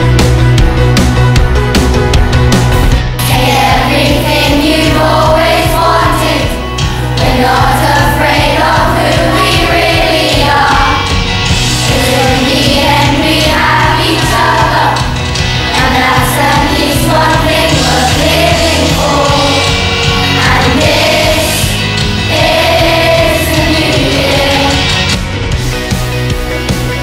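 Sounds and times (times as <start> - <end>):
pop backing track with drums: 0.0 - 27.0
children singing: 3.2 - 11.2, 11.8 - 25.2.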